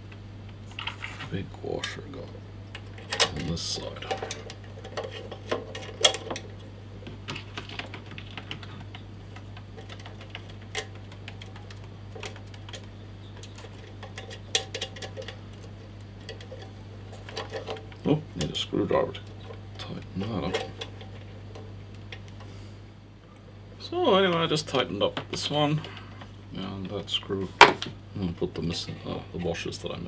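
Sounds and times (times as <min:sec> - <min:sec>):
steady low hum: 0:00.0 - 0:30.0
small metal and plastic parts clicking: 0:07.3 - 0:22.5.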